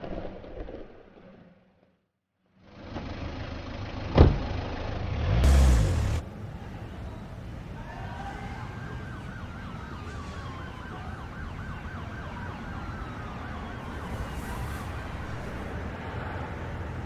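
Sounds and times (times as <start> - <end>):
low traffic rumble: 2.6 - 17.0
siren yelping: 8.3 - 15.5.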